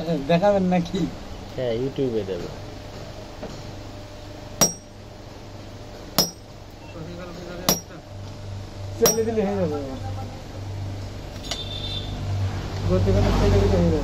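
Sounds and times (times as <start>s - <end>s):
hammer striking metal on anvil: 4.6s - 5.0s, 6.2s - 6.5s, 7.7s - 8.0s, 9.0s - 9.4s.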